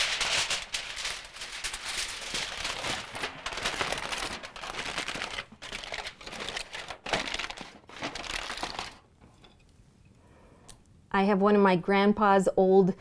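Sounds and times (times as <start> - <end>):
aluminium foil crinkling: 0.0 - 9.1.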